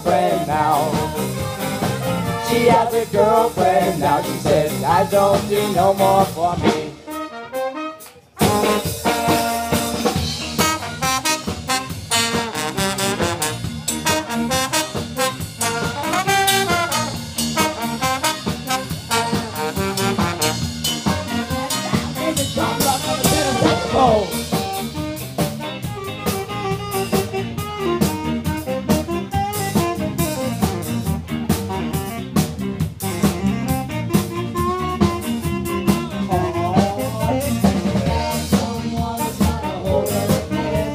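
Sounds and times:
ska band playing: 0:00.0 - 0:40.9
saxophone solo: 0:00.6 - 0:02.9, 0:06.9 - 0:40.9.

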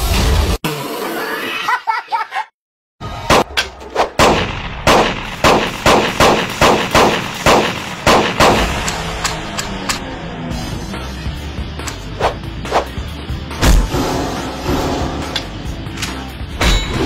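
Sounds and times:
rapid gunfire shots: 0:04.2 - 0:09.1.

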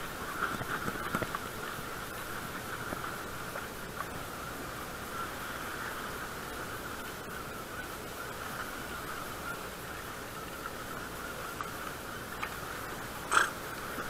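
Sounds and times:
fishing reel gears whirring: 0:13.3 - 0:13.6.

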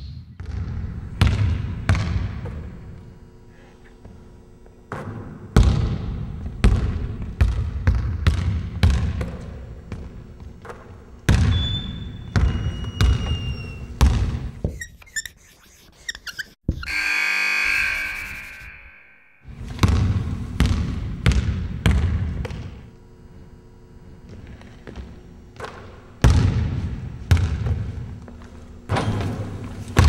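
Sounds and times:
basketball bouncing on wooden floor: 0:00.4 - 0:02.7, 0:04.9 - 0:14.8, 0:19.7 - 0:22.8, 0:24.8 - 0:28.1
sneaker squeaks: 0:11.4 - 0:18.9
steady tone: 0:16.7 - 0:19.6.

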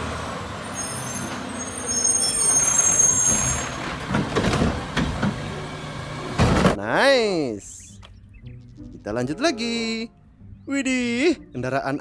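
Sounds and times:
thin high squeal: 0:00.8 - 0:03.8
garbage truck engine running: 0:03.4 - 0:06.8.

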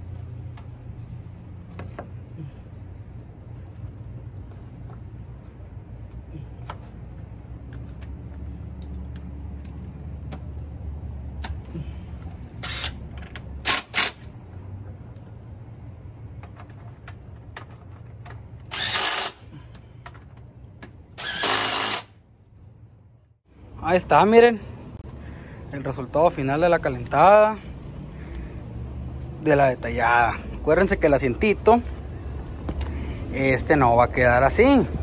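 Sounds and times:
clicks and clanks of parts: 0:07.6 - 0:10.5, 0:11.3 - 0:14.3, 0:16.3 - 0:22.1
cordless power tool driving bolts: 0:12.6 - 0:14.3, 0:18.6 - 0:19.5, 0:21.2 - 0:22.1.

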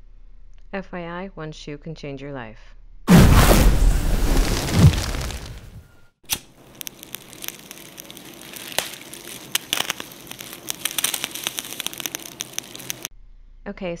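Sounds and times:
fire crackling and popping: 0:03.1 - 0:13.1.

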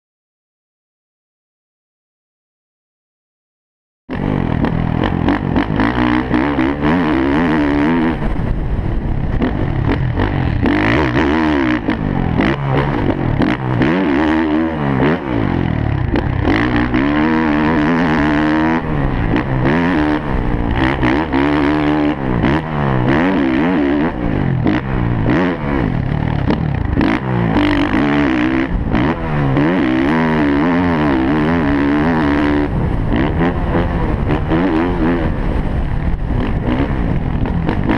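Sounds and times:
dirt bike engine revving: 0:04.1 - 0:37.9.

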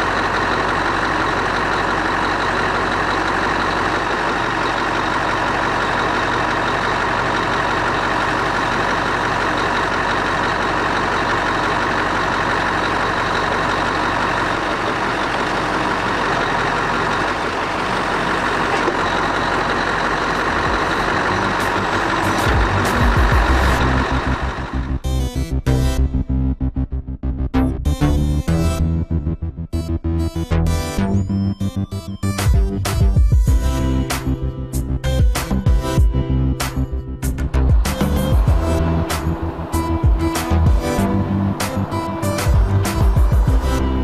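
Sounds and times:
low pulsing: 0:00.0 - 0:26.0, 0:35.8 - 0:44.0
diesel engine running: 0:00.0 - 0:26.7, 0:27.9 - 0:44.0.

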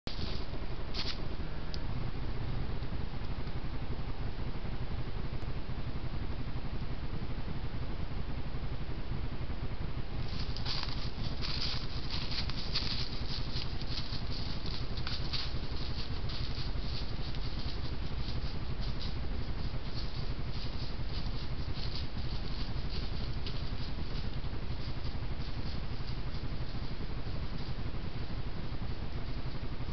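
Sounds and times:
footsteps through dry leaves: 0:00.1 - 0:01.2, 0:10.2 - 0:26.9
low background rumble: 0:00.1 - 0:29.9.

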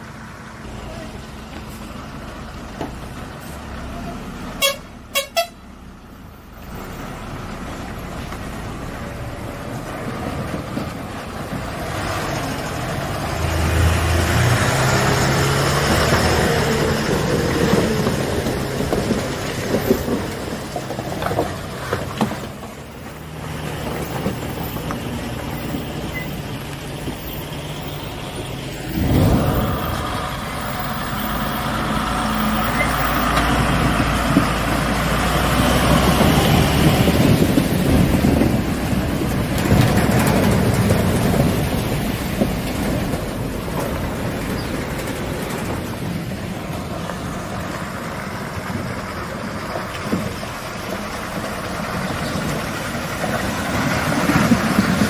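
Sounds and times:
truck diesel engines: 0:00.0 - 0:55.0
horn toots: 0:04.6 - 0:05.6.

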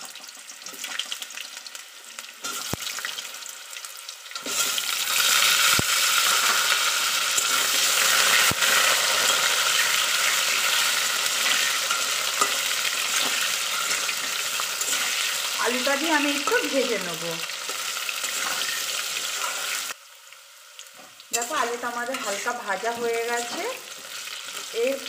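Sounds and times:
potatoes sizzling in hot oil: 0:00.0 - 0:25.0.

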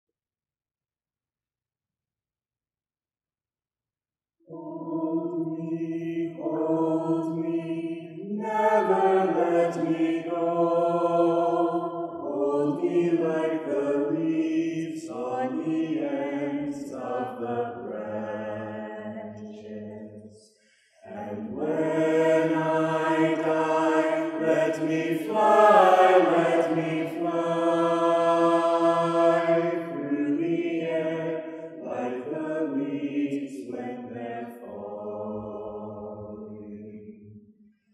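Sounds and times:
mixed choir singing unaccompanied: 0:04.5 - 0:20.4, 0:21.0 - 0:37.2.

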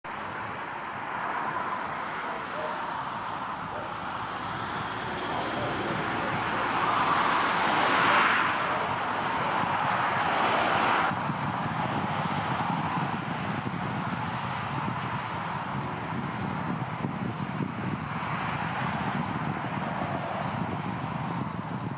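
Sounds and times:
road traffic rush: 0:00.0 - 0:21.9
vehicle passing: 0:00.2 - 0:21.6.

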